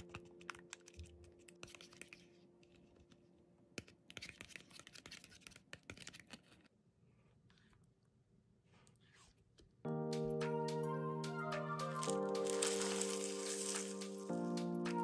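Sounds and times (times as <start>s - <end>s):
plastic spoon stirring in cup: 0.0s - 2.3s.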